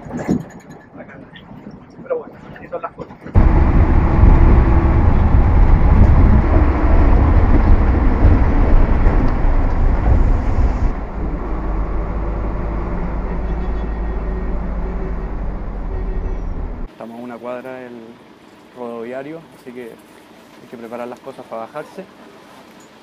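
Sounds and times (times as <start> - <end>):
bus engine and road rumble: 3.4 - 16.9.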